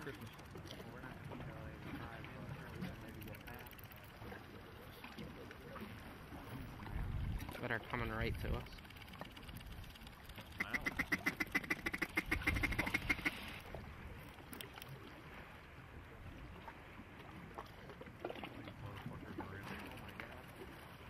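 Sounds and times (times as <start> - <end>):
duck quacks: 10.6 - 13.4.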